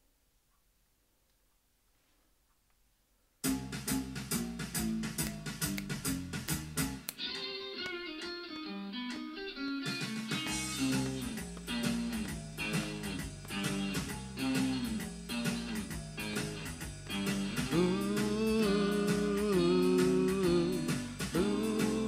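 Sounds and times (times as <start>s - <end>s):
bass line: 3.4s - 7.2s, 10.4s - 22.0s
steady beat: 3.4s - 7.5s, 9.9s - 22.0s
blues guitar: 7.0s - 22.0s.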